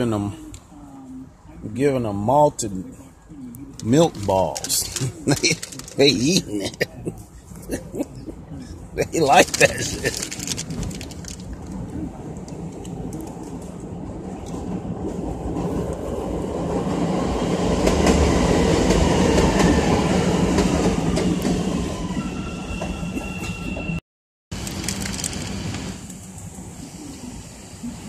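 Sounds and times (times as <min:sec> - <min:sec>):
large vehicle rumble: 0:03.6 - 0:16.1, 0:24.6 - 0:28.0.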